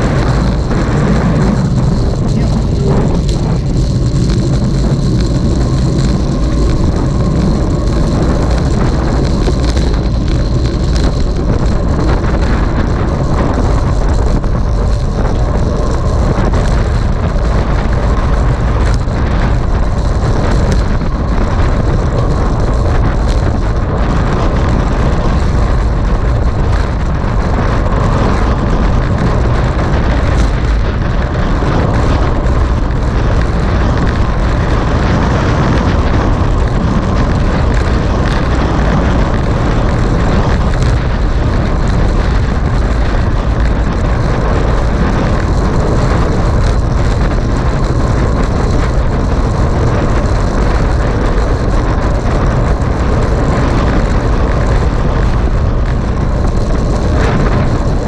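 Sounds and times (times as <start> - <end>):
wind buffeting microphone: 0.0 - 58.0
wind rush from riding bicycle: 0.0 - 58.0.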